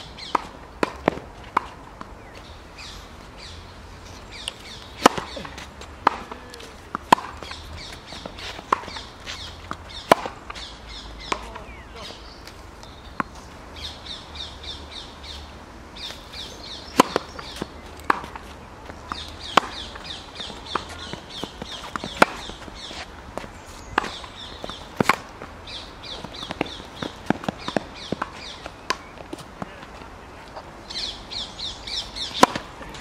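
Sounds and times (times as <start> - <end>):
tennis ball pops: 4.4 - 7.6, 9.7 - 10.6, 16.8 - 18.5, 19.1 - 22.6, 32.2 - 33.0.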